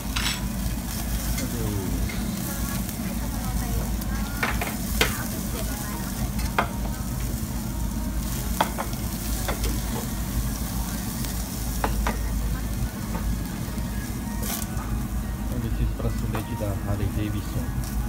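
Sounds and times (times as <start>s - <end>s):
meat sizzling on a grill: 0.0s - 18.0s
metal tongs knocking on grill: 4.4s - 5.3s, 8.6s - 10.1s, 11.8s - 12.3s.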